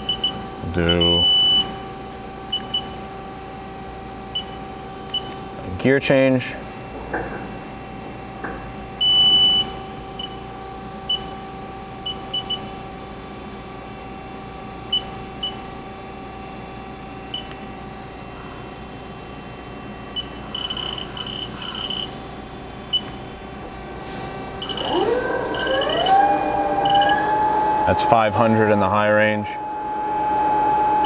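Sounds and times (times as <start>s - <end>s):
machine control beeping: 0.0s - 1.8s, 9.0s - 10.4s, 20.2s - 22.2s, 24.6s - 29.9s
idling machine hum: 12.8s - 31.0s.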